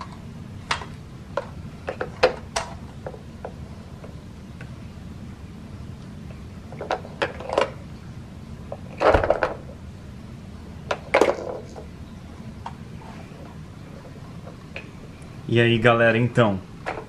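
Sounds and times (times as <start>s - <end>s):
plastic toys clattering: 6.8s - 7.8s, 10.9s - 11.8s.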